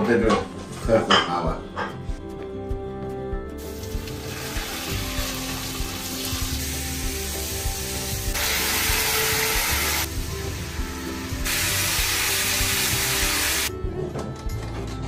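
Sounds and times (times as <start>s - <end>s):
background music: 0.0s - 15.0s
food sizzling in a wok: 3.6s - 13.7s.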